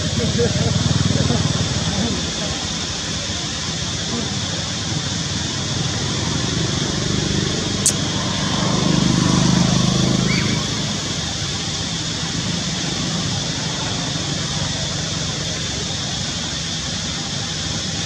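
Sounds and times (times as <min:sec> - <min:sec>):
sharp click: 0:07.8 - 0:08.0.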